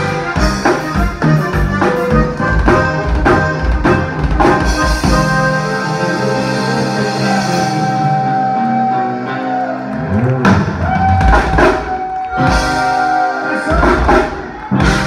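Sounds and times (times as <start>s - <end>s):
drum kit: 0.0s - 8.6s, 10.1s - 15.0s
accordion sustained notes: 0.0s - 10.5s
electric bass: 0.0s - 13.0s.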